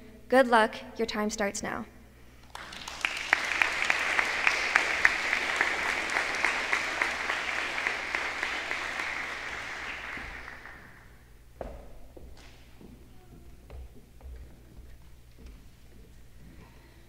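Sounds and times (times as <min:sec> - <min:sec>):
small group applauding: 0:02.4 - 0:11.3.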